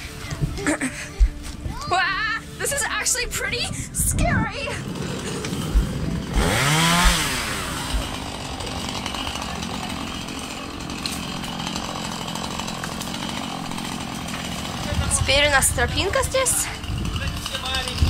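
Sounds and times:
low thumps: 4.1 - 8.4
chainsaw revving: 4.6 - 18.0.

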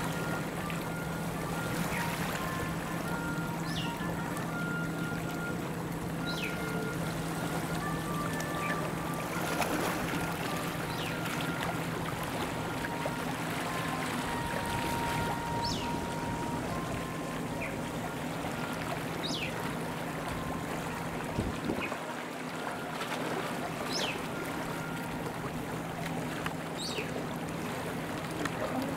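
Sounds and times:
steady low hum: 0.0 - 28.9
water lapping against rocks: 7.1 - 17.2, 18.0 - 28.9.

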